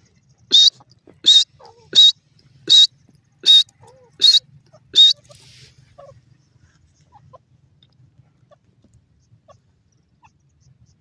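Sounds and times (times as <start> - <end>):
bird calling high-pitched: 0.5 - 5.4.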